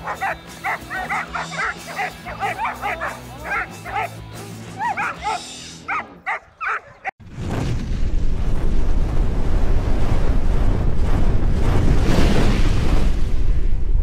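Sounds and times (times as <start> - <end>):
dog barking and yelping: 0.0 - 4.1, 4.8 - 7.1.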